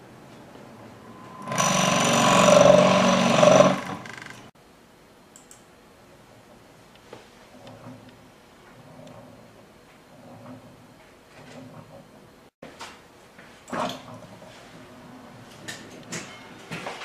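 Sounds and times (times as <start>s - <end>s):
motor and gearing buzzing rattle: 1.4s - 4.5s.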